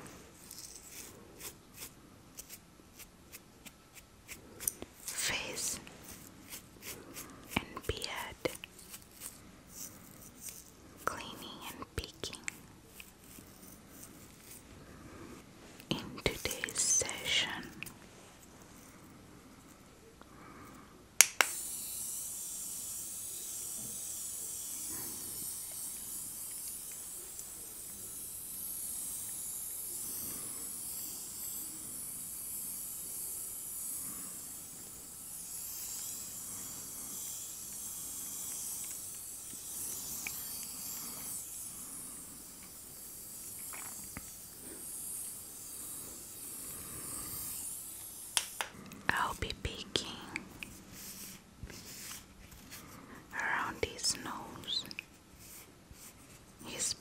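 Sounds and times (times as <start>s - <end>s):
mist sprayer hissing: 21.5s - 48.7s
mist sprayer clicking on: 46.5s - 48.8s.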